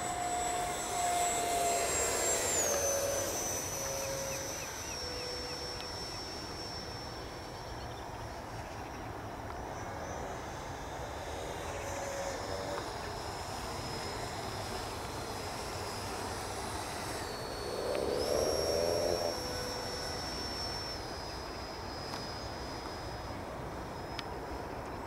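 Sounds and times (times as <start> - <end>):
model jet fan whine: 0.0 - 25.0.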